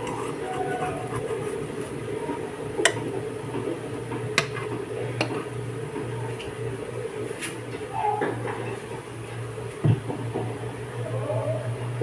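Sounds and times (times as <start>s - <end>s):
steady low hum: 0.0s - 7.8s.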